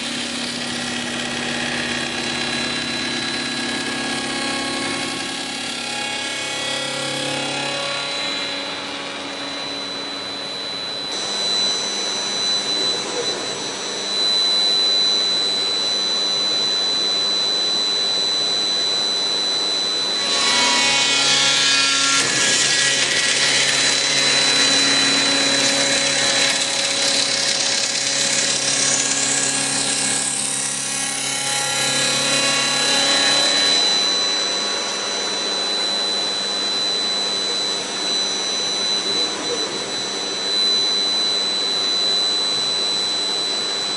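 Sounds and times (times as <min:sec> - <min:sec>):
machine spindle whining: 0:00.0 - 0:43.9
tool cutting timber: 0:20.2 - 0:33.4.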